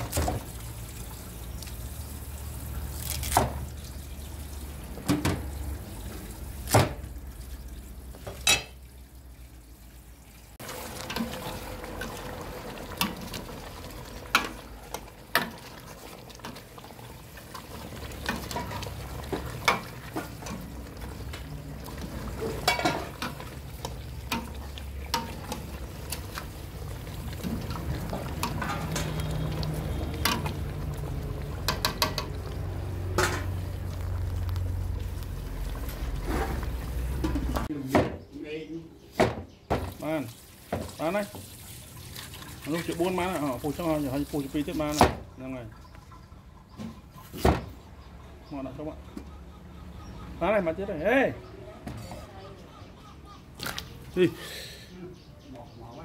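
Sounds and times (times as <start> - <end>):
ladle clinking and scraping pot: 8.3 - 8.8, 17.4 - 26.5, 27.2 - 30.9, 31.6 - 33.7.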